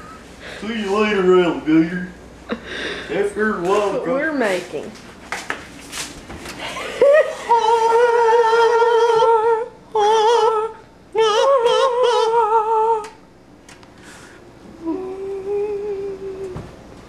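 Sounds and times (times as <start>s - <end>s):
breaths: 2.6s - 3.1s, 13.9s - 14.5s
person humming with vibrato: 7.0s - 13.1s, 14.6s - 16.8s.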